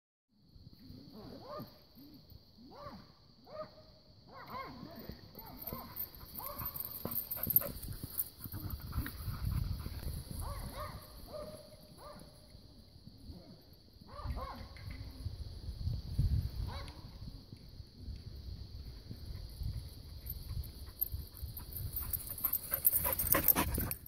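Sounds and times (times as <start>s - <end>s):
dog barking: 1.4s - 1.8s, 2.7s - 4.8s, 10.4s - 12.2s, 14.1s - 14.7s.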